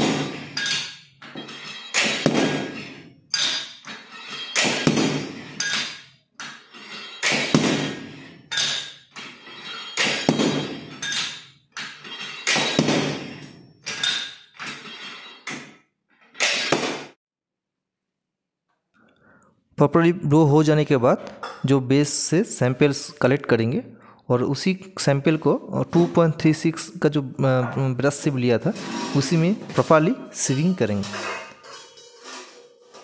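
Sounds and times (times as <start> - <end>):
steel hammer striking stone: 0.0 - 3.8, 4.4 - 6.0, 7.2 - 9.0, 9.9 - 11.4, 12.3 - 14.4, 16.4 - 17.2.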